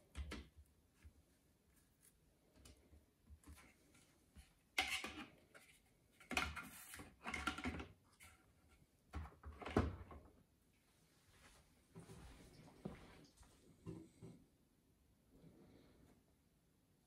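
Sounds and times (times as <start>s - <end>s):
objects knocking and clunking: 3.3s - 8.4s.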